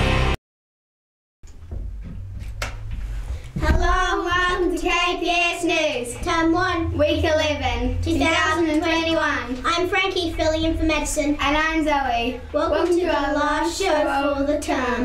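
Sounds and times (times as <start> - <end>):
low room hum: 1.5 - 15.0
child singing: 3.6 - 11.8.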